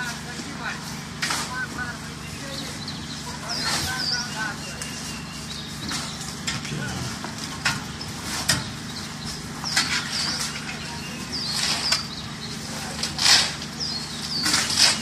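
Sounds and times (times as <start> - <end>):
steady low hum: 0.0 - 15.0
shovels and pans scraping: 9.7 - 10.8, 11.4 - 12.1, 12.9 - 15.0.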